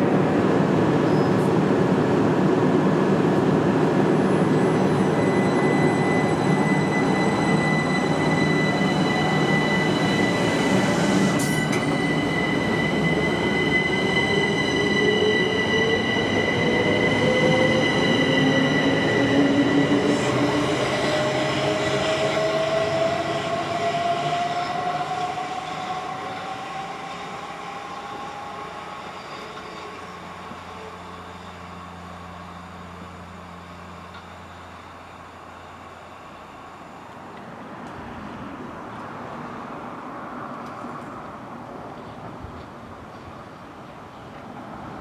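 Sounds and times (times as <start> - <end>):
distant train: 0.0 - 45.0
electric train accelerating: 2.3 - 37.5.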